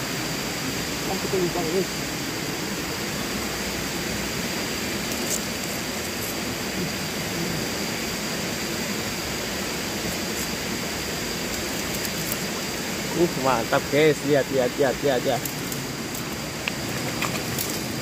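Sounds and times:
river water rushing: 0:00.0 - 0:18.0.

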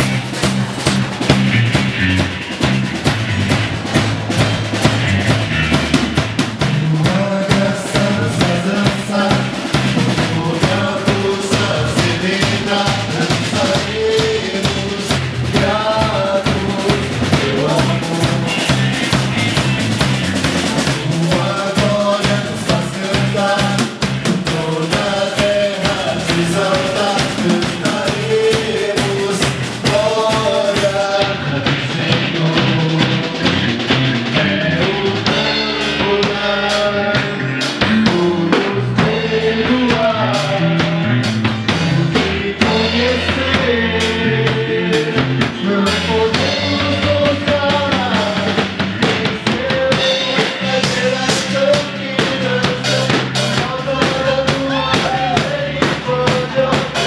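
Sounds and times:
bass guitar: 0:00.0 - 0:57.0
drum kit: 0:00.0 - 0:57.0
electric and acoustic guitars: 0:00.0 - 0:57.0
person singing: 0:06.6 - 0:57.0.

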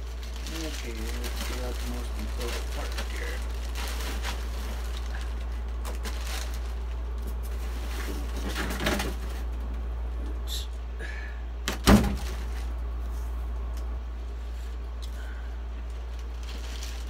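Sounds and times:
foam box and plastic bag rustling: 0:00.0 - 0:09.8, 0:11.7 - 0:13.4, 0:15.8 - 0:17.0.

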